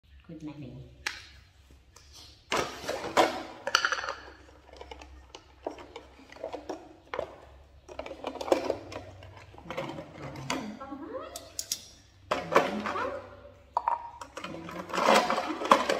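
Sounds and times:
metal tools rattling in plastic jar: 2.5s - 10.8s, 14.2s - 15.9s.

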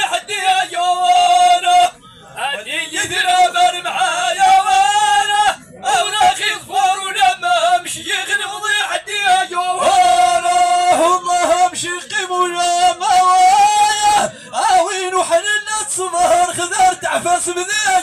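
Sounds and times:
man chanting into a microphone: 0.0s - 18.0s.

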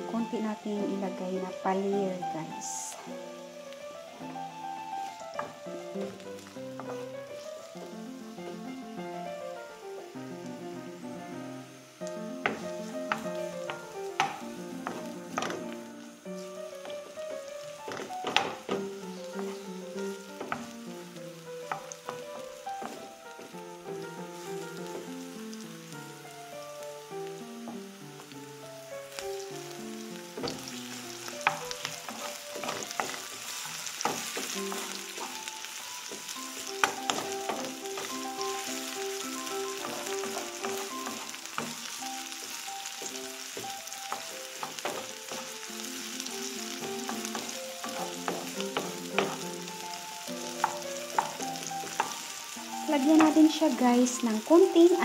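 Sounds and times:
onions sizzling in a frying pan: 0.0s - 55.0s
soft background music: 0.0s - 55.0s
spatula scraping a pan: 30.4s - 42.0s.

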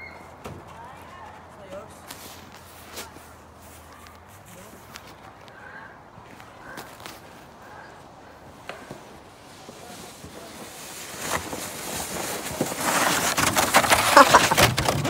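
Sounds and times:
crunching and scraping in snow: 1.2s - 15.0s
plastic sled sliding on snow: 8.4s - 15.0s.

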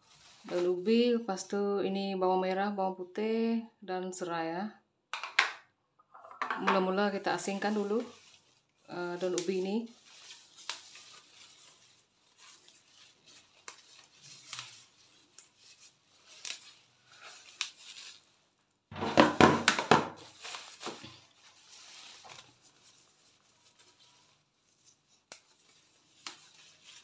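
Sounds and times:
leaves rustling and stems snapping: 7.5s - 18.4s, 20.2s - 27.0s
knocks: 18.9s - 20.1s.

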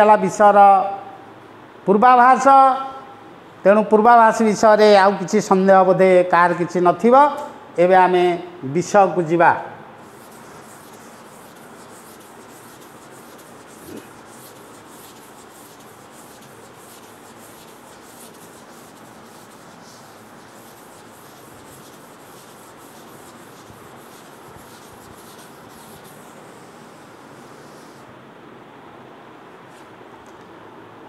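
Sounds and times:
duster rubbing a chalkboard: 10.0s - 28.1s.

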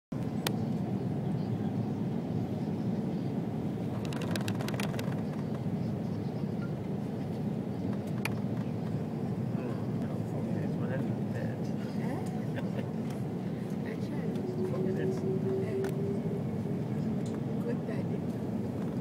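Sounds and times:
airliner cabin engine drone: 0.2s - 19.0s.

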